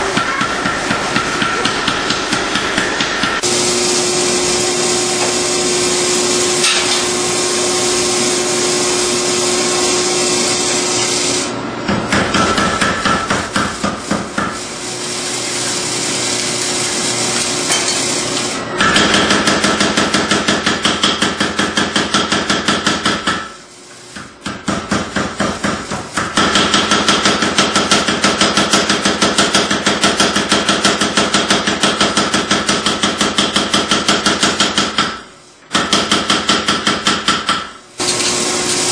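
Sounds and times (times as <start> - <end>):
power hammer pounding steel: 0.0 - 3.6, 11.9 - 14.6, 18.8 - 23.6, 24.3 - 37.8.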